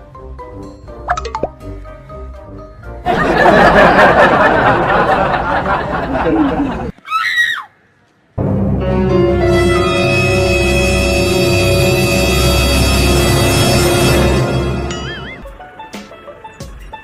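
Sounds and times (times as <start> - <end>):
music: 0.0 - 4.6, 8.4 - 17.0
crowd laughter: 3.1 - 6.9.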